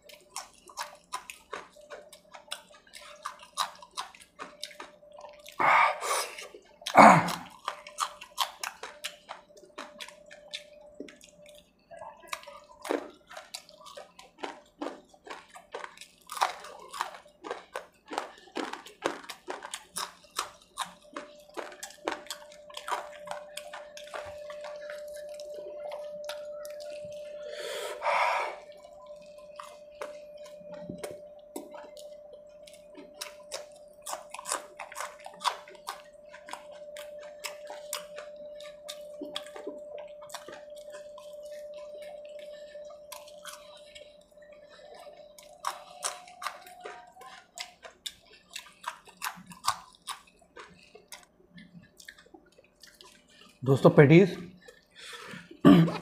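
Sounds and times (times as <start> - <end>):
faint steady hum: 0.0 - 56.0
wet chewing and lip-smacking: 0.0 - 56.0.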